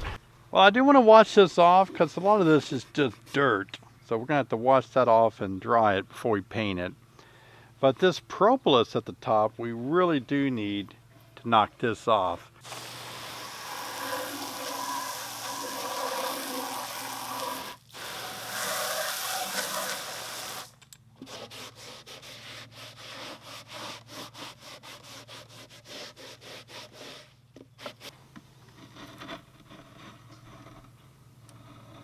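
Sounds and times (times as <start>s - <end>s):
garden hose spraying water on wood: 12.6s - 27.2s
towel rubbing wet wood: 12.7s - 28.1s.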